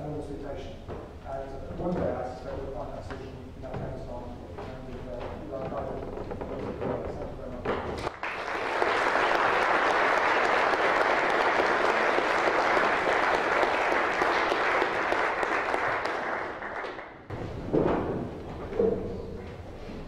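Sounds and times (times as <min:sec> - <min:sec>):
audience applauding: 0:08.1 - 0:17.2.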